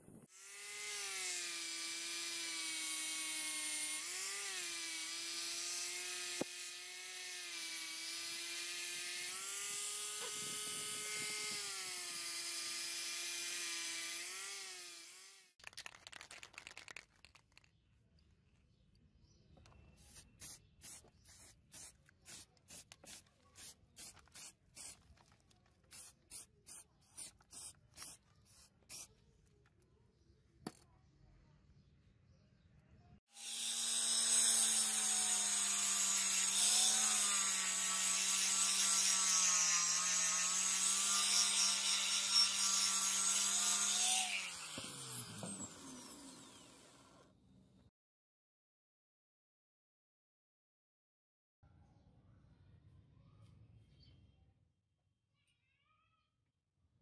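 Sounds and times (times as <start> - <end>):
electric power tool whining: 0.3 - 15.5, 33.4 - 47.3
aerosol spray can hissing: 20.0 - 25.0, 25.9 - 29.1.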